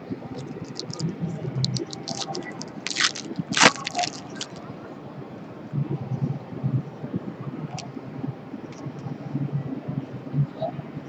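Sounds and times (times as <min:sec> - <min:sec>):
cards and packaging crinkling: 0:00.4 - 0:04.6.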